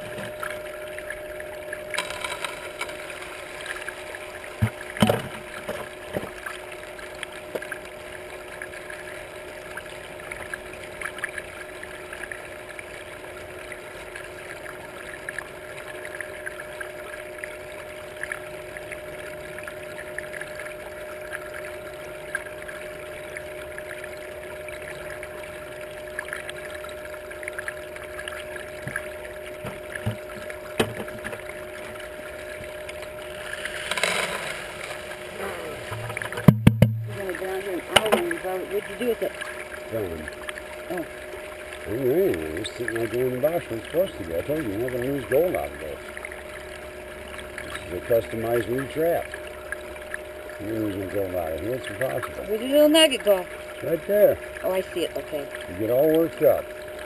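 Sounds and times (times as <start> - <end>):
pump motor humming: 0.0 - 57.0
water running down metal sluice: 1.9 - 7.8, 28.9 - 46.2, 47.4 - 49.4, 50.6 - 56.7
gravel washing through riffles: 33.3 - 36.1
sharp knocks: 35.9 - 37.2.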